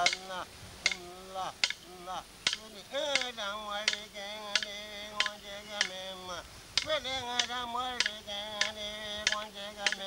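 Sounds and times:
wooden stick clicks: 0.0 - 0.2, 0.8 - 6.0, 6.8 - 10.0
man singing held notes: 0.0 - 10.0.

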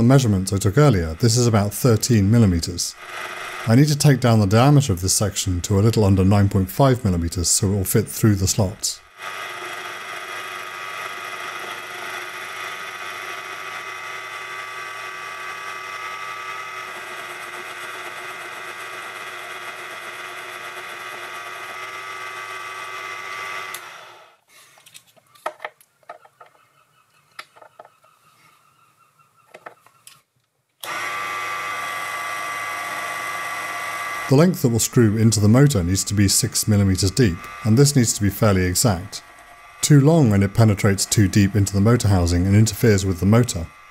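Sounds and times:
metal lathe motor whine: 0.0 - 6.0, 8.4 - 24.4, 30.8 - 43.9.

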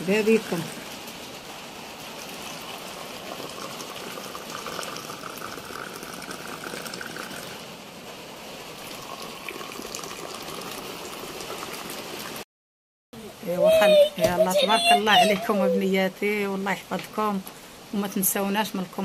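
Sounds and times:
tea pouring and splashing into glasses: 2.4 - 7.6, 8.8 - 12.4.

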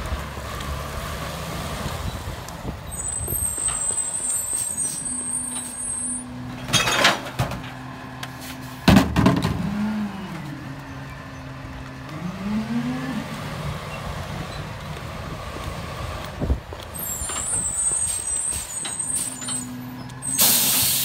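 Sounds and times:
engine revving: 9.4 - 10.9, 11.6 - 16.3.

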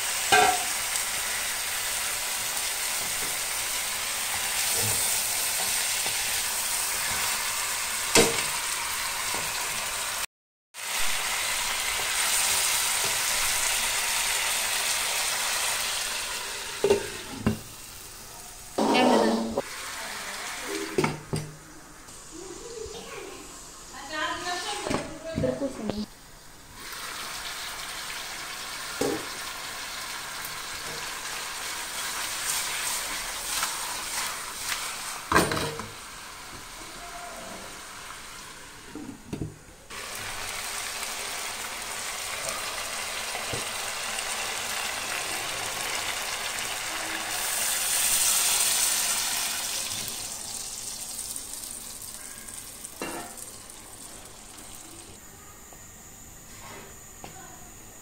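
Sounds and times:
fish sizzling in pan: 0.0 - 21.2, 22.1 - 39.0, 39.9 - 55.2
utensil knocking pan: 0.3 - 0.8.

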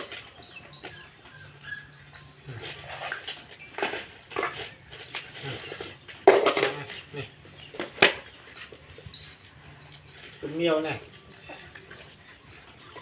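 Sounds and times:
food bowls scraping on tiles: 2.5 - 8.7
metal bowl clattering on tiles: 5.6 - 7.0.

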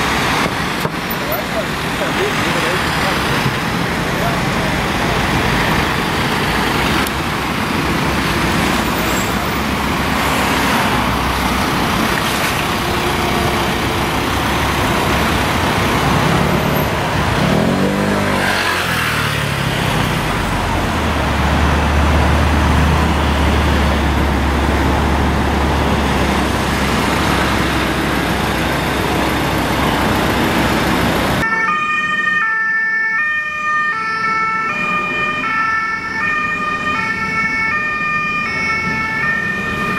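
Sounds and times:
vehicle engines and tyre noise: 0.0 - 39.9
two-tone police siren: 31.4 - 39.9.

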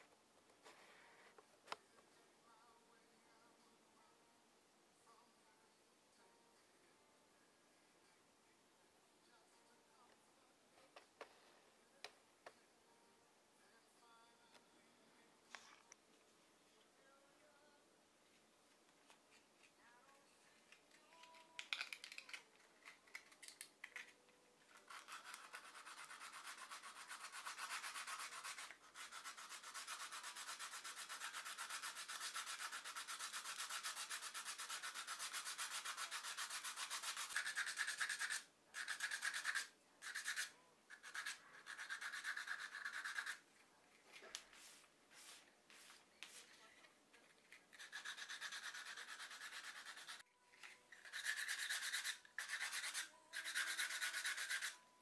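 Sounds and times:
hand sanding wood: 25.0 - 43.4, 51.1 - 54.8.

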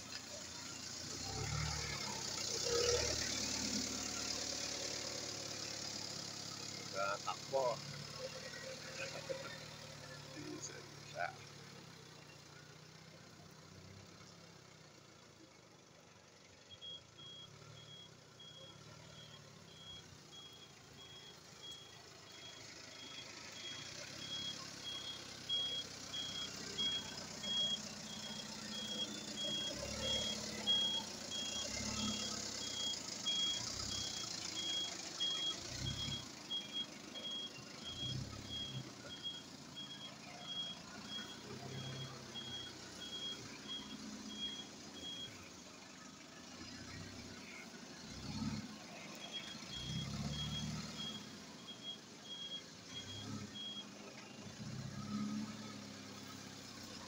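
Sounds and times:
diesel engine running: 0.0 - 57.0
reverse alarm beeping: 16.7 - 45.4, 49.1 - 53.9.

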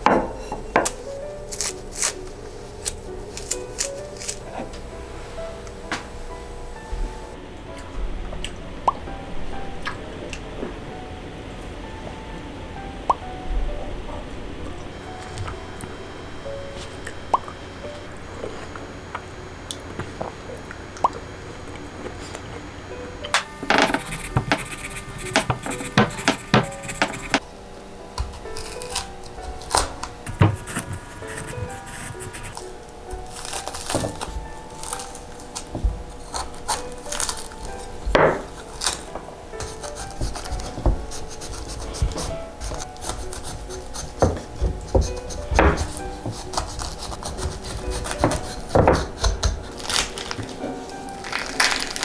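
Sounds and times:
soft background music: 0.0 - 52.0
knife scraping fruit rind: 1.4 - 4.7, 23.7 - 27.4, 28.3 - 32.6, 33.2 - 37.9, 38.5 - 50.5.

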